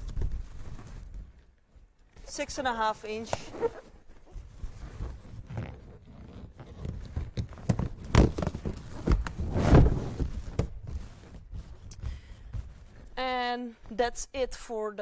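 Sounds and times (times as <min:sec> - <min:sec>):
balloons rubbing and squeaking: 0:00.0 - 0:13.2
balloon thumps: 0:05.1 - 0:13.1.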